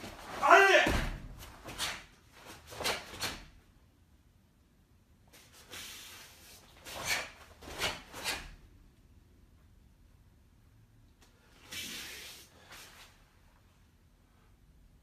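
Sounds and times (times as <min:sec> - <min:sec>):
bare feet on foam mats: 0:00.0 - 0:03.6, 0:05.3 - 0:08.6, 0:11.3 - 0:13.4.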